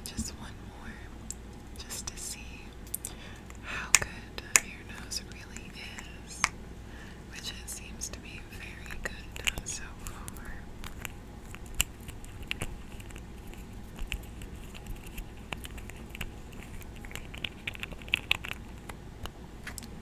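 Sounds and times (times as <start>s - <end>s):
wet mouth clicks and pops: 10.3s - 19.0s.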